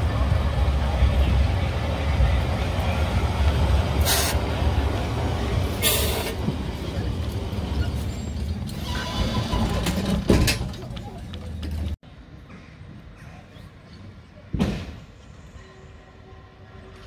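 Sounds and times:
tram rumbling: 0:00.0 - 0:17.0
air hisses: 0:04.0 - 0:04.4.

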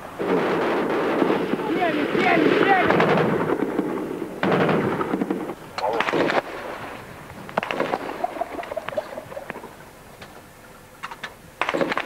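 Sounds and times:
gunshots: 0:00.2 - 0:07.0, 0:07.6 - 0:08.9, 0:11.6 - 0:12.0.

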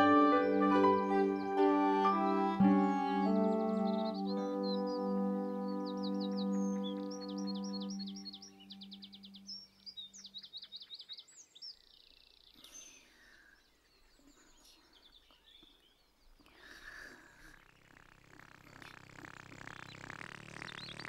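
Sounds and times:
held music note: 0:00.0 - 0:09.5
birds chirping and trilling: 0:00.0 - 0:16.7, 0:17.4 - 0:21.0.

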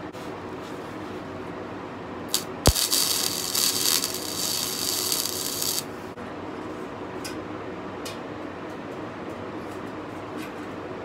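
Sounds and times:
electric arc welding crackling hiss: 0:02.3 - 0:05.9.

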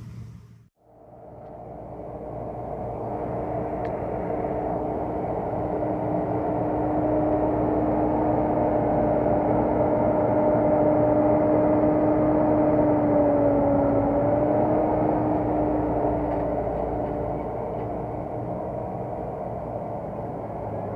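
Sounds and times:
combine harvester droning: 0:00.0 - 0:20.9.

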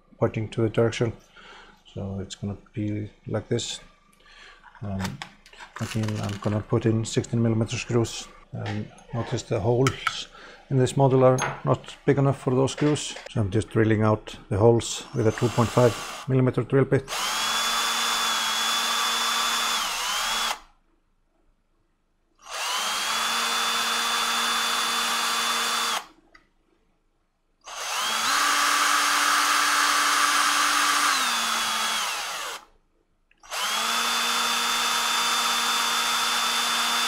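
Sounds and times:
drill bit drilling plastic: 0:05.8 - 0:06.6, 0:15.0 - 0:16.3, 0:17.1 - 0:20.6, 0:22.4 - 0:26.1, 0:27.7 - 0:32.7, 0:33.4 - 0:37.0
power drill whining: 0:05.8 - 0:06.6, 0:15.0 - 0:16.3, 0:17.1 - 0:20.7, 0:22.4 - 0:26.1, 0:27.7 - 0:32.7, 0:33.4 - 0:37.0.

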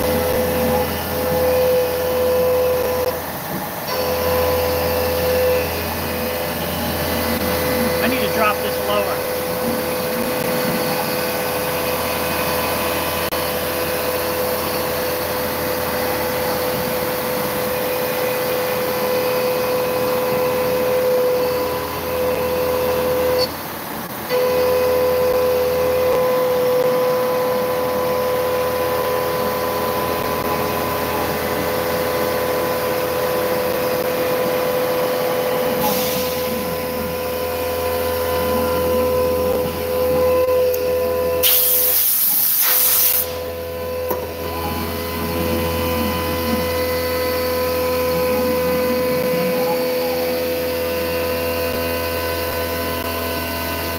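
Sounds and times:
milling machine cutting whine: 0:00.0 - 0:53.9
coolant mist spraying hiss: 0:41.4 - 0:43.4.

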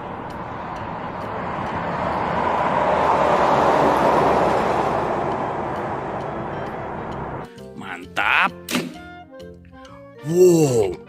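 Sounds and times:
truck driving past: 0:00.0 - 0:07.7.

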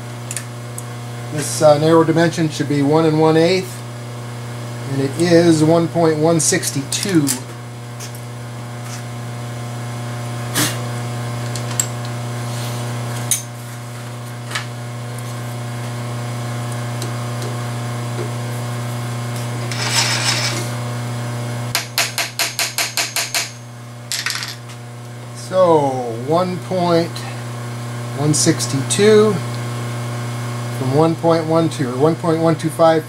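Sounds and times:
steady motor hum: 0:00.0 - 0:33.0.

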